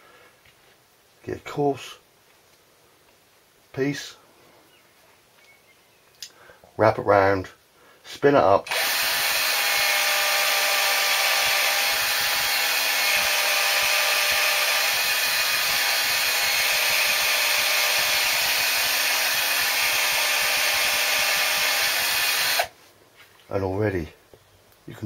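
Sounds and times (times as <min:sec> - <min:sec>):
cordless drill whine: 0:08.7 - 0:22.7.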